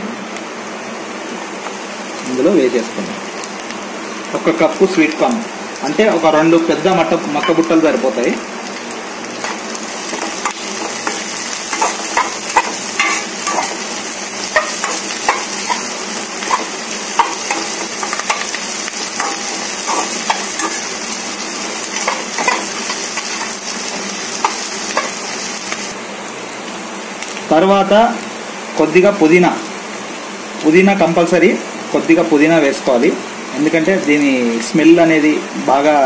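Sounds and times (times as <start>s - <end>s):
vegetables sizzling in oil: 0.0s - 36.0s
spatula scraping pan: 9.4s - 25.3s.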